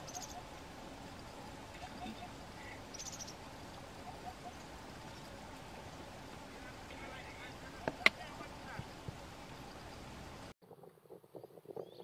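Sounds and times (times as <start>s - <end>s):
soft bird chirps: 0.0s - 0.5s, 1.2s - 3.4s.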